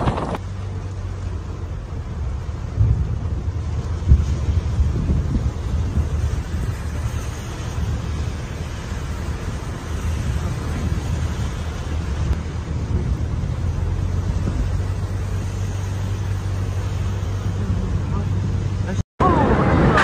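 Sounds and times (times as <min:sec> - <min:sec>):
heavy rain hiss: 0:01.9 - 0:18.4
low thunder rumble: 0:02.0 - 0:15.7.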